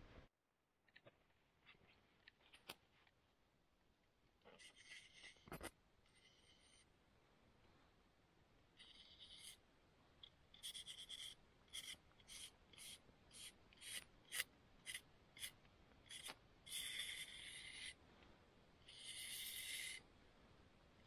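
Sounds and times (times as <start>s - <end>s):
knife scraping wooden stick: 10.6s - 18.0s.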